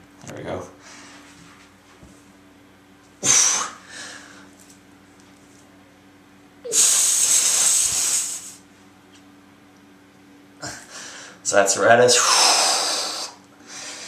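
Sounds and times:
man exhaling forcefully: 3.2 - 4.4, 6.7 - 8.6.

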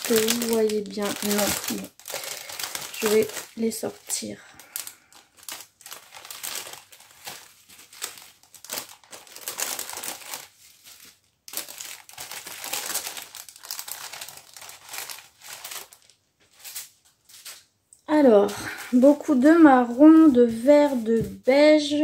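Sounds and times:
plastic bags crinkling: 0.0 - 21.6.

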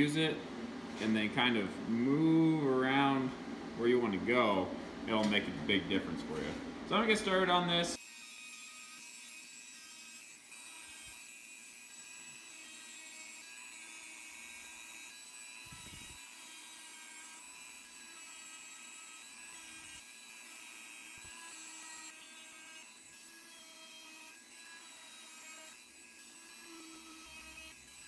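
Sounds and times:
rotary tool thin whine: 8.0 - 28.0.

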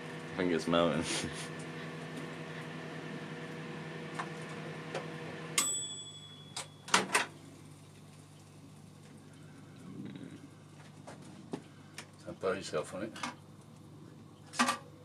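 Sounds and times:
microwave oven humming: 0.0 - 15.0
microwave timer ding: 5.5 - 7.3.

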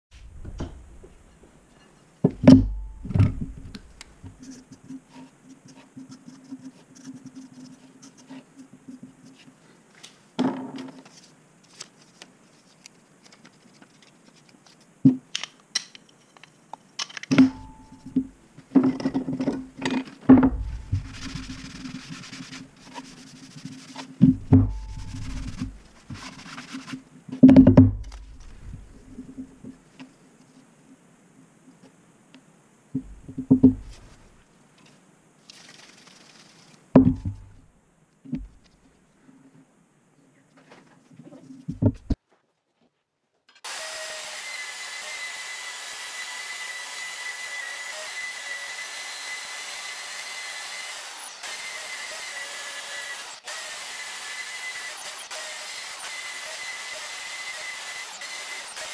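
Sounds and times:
hissy scraping: 20.5 - 24.2.

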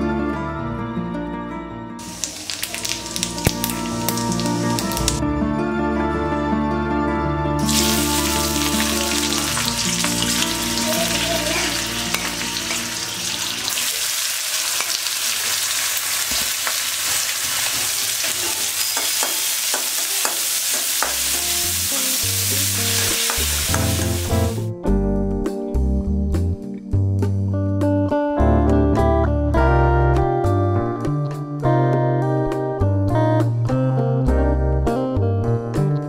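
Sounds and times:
soft background music: 0.0 - 13.8
hot oil sizzling: 2.0 - 5.2, 7.6 - 24.7
spatula scraping and tapping: 18.8 - 21.4.

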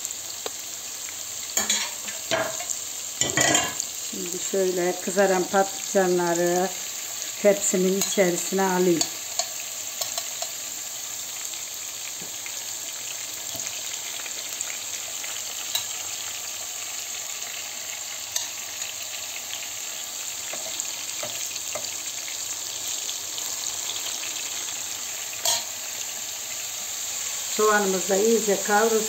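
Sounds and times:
vegetables sizzling in hot oil: 0.0 - 29.0
metal utensil clicking on dishes: 9.0 - 10.5.

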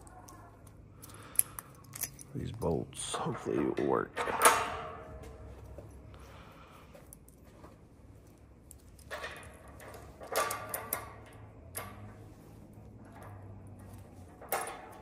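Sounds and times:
bolts clinking on steel table: 1.0 - 2.5, 8.7 - 12.2, 13.0 - 15.0.

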